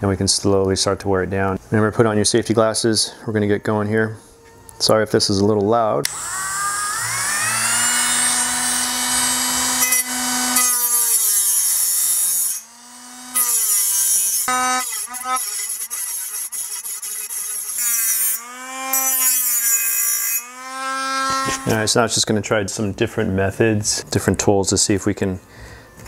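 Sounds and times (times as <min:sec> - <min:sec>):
cut-off wheel grinding metal: 0:06.0 - 0:21.8
rotary tool motor whine: 0:06.0 - 0:21.8.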